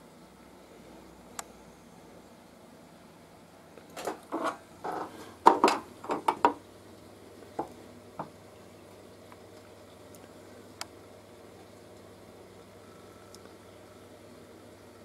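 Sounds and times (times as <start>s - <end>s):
metal tools knocking and scraping: 4.0s - 6.6s.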